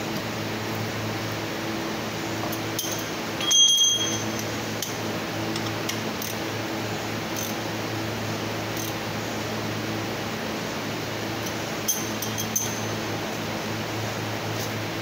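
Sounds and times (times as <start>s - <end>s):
steady background hum: 0.0s - 15.0s
metal tools clinking on engine: 2.4s - 6.4s, 11.4s - 13.0s.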